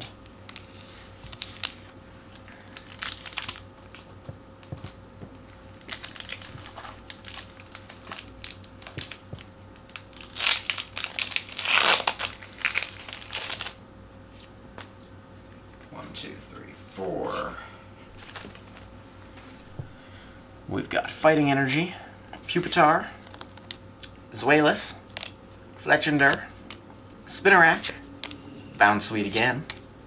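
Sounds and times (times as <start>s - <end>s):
foil wrapper crinkling and tearing: 0.5s - 4.1s, 5.7s - 13.8s, 18.2s - 18.9s, 23.1s - 25.4s.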